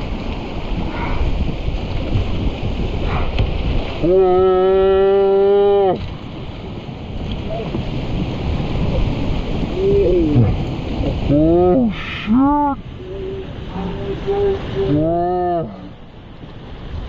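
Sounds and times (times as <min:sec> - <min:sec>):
whitewater rushing and splashing: 0:00.0 - 0:17.0
person yelling: 0:11.3 - 0:15.7.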